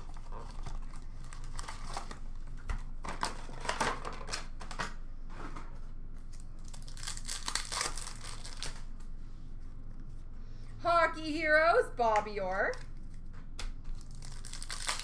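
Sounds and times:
foil pack tearing open: 0.0s - 2.2s, 6.3s - 8.9s, 14.0s - 15.0s
foil wrappers crinkling: 0.0s - 4.7s, 6.2s - 8.9s, 13.9s - 15.0s.

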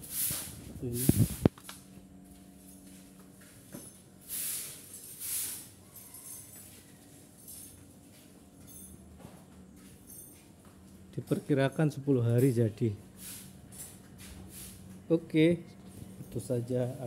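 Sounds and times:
short bursts of hiss: 0.0s - 1.5s, 4.2s - 5.8s, 13.2s - 13.6s
low workshop hum: 0.0s - 17.0s
faint clinks: 5.9s - 7.9s, 8.6s - 12.6s.

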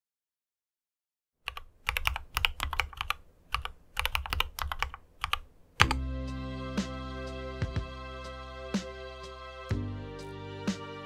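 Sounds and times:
mechanical keyboard typing: 1.5s - 6.0s.

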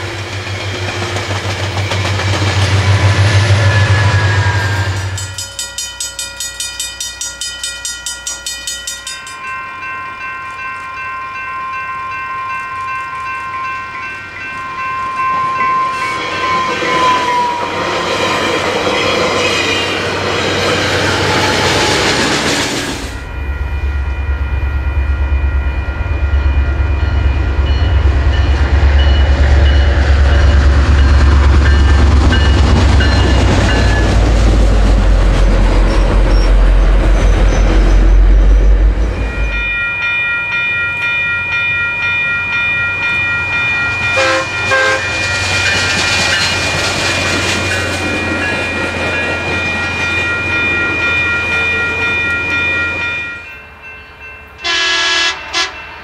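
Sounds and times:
train cars clattering over rails: 0.0s - 9.4s, 43.1s - 53.3s
train horn: 2.6s - 5.4s, 15.0s - 17.8s, 44.2s - 45.2s, 54.6s - 55.9s
locomotive engine rumble: 20.0s - 40.0s.

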